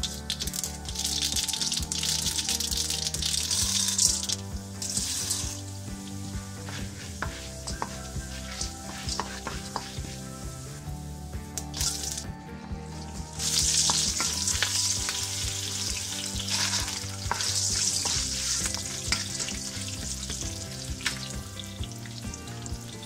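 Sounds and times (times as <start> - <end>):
sharp pops of frying seeds: 0.0 - 5.7, 11.5 - 12.3, 13.4 - 22.3
hot oil sizzling in a wok: 0.0 - 23.0
wooden spatula stirring: 2.8 - 12.2, 13.0 - 21.2.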